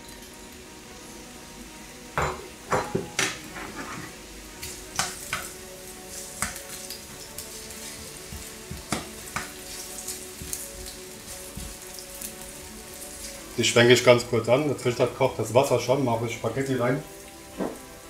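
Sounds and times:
onions sizzling in oil: 0.0 - 18.0
spatula scraping pan: 3.5 - 4.3.

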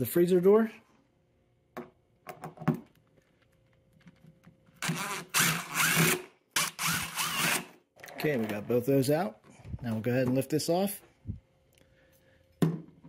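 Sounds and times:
power driver running: 4.8 - 7.7.

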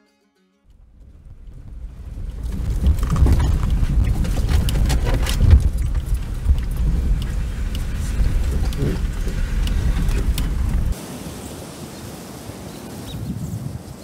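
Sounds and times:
knocks and rattles over bumps: 0.7 - 11.0
truck engine and tyres rumbling: 0.7 - 11.0.

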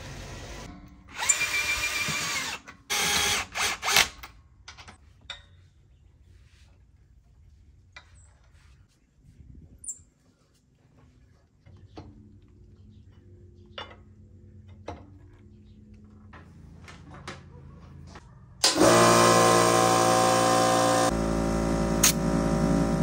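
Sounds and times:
portable air compressor running: 18.6 - 23.0.

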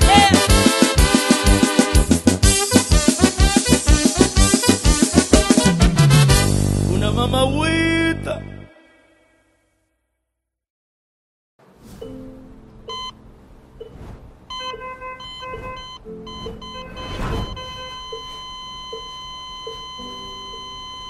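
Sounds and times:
heart monitor beeps: 12.9 - 13.2, 13.8 - 21.0
flatline tone: 13.8 - 21.0
noisy swell: 13.9 - 14.5
low electronic blips: 15.3 - 18.5.

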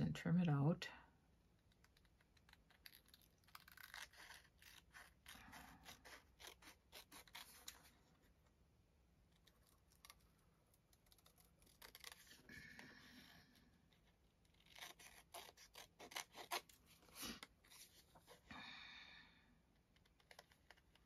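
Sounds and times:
scissors snipping paper: 1.6 - 7.9, 9.4 - 12.5, 14.4 - 16.8.

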